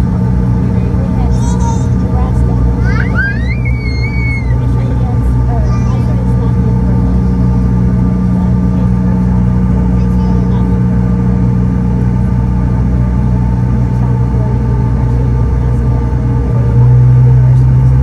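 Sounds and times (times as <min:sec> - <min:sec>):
jet engine cabin drone: 0:00.0 - 0:18.0.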